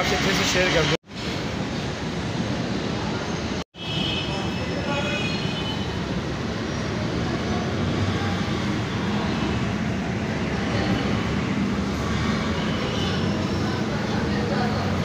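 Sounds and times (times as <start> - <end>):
crowd hubbub: 6.2 - 15.0.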